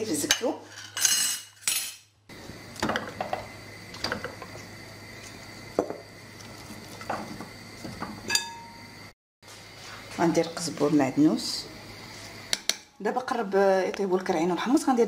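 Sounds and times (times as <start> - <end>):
knocks and clinks in metal pot: 7.0 - 8.9.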